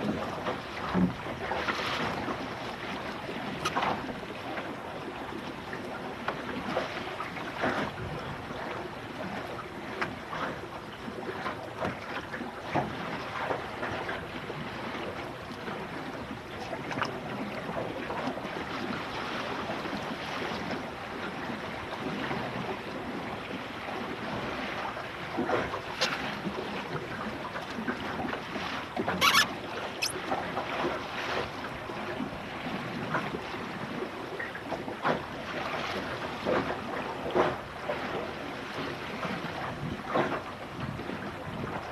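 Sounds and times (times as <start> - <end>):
water rushing along a boat hull: 0.0 - 41.9
sharp slaps on hull: 3.5 - 4.1, 25.4 - 26.6.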